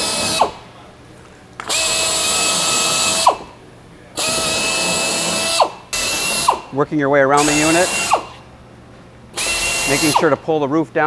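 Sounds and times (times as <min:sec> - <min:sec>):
drill boring through plastic: 0:00.0 - 0:00.6, 0:01.7 - 0:03.4, 0:04.2 - 0:06.7, 0:07.4 - 0:08.3, 0:09.4 - 0:10.4.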